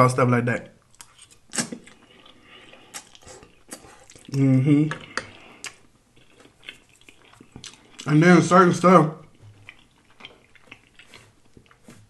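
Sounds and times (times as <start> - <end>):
slurping and chewing spaghetti: 1.0 - 8.1, 9.2 - 12.0
person humming: 4.3 - 5.2.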